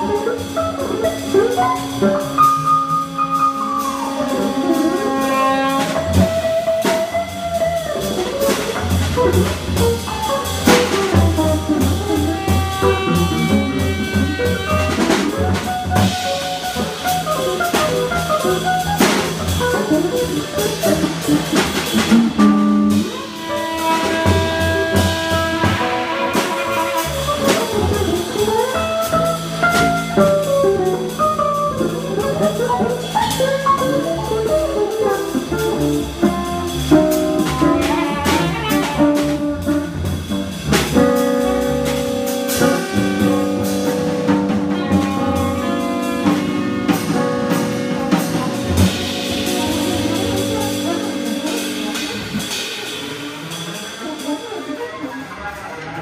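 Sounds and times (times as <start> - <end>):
guitar: 0.0 - 4.5, 6.0 - 52.6
saxophone: 0.0 - 31.2, 32.6 - 40.5, 41.1 - 56.0
busy drumming: 0.0 - 56.0
double bass: 0.0 - 56.0.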